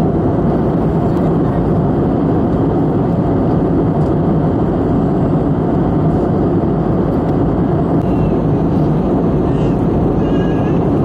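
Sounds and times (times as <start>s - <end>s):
airliner cabin engine roar: 0.0s - 11.0s.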